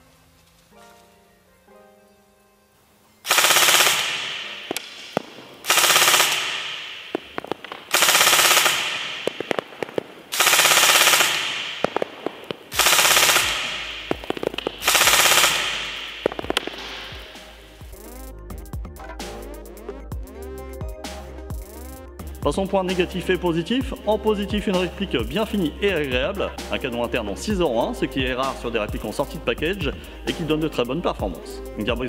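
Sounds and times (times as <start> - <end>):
sharp ticks: 3.3 - 17.6
airsoft rifle firing bursts: 3.3 - 18.0.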